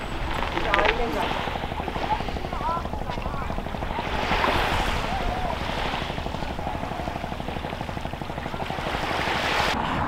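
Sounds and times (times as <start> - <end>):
small waves lapping on shingle: 0.0 - 9.8
boat engine chugging: 0.0 - 10.0.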